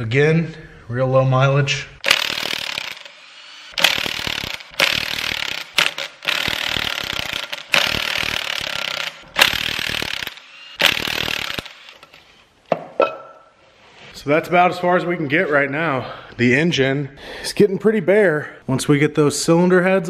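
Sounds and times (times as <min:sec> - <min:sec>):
impact wrench hammering: 0:02.0 - 0:13.3.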